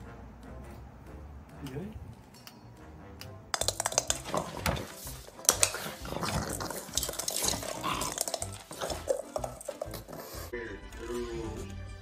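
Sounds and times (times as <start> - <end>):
dog claws clicking on tiles: 3.5 - 10.5.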